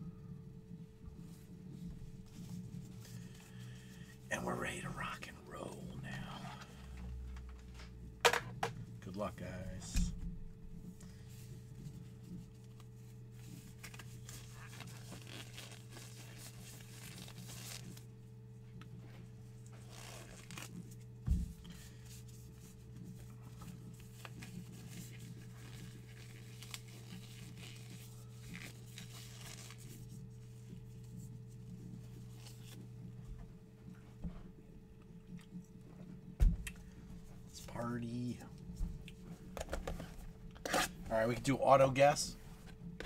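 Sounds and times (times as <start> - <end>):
steady low hum: 0.0 - 43.0
plastic and foil wrappers rustling: 13.4 - 18.1, 23.8 - 30.2
card packs torn open: 19.8 - 20.8, 25.6 - 29.9.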